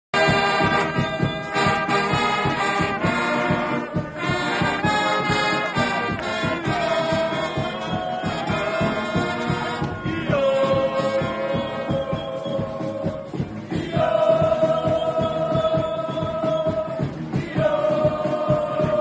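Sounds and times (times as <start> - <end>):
brass band playing: 0.1 - 19.0
steady beat: 0.2 - 19.0.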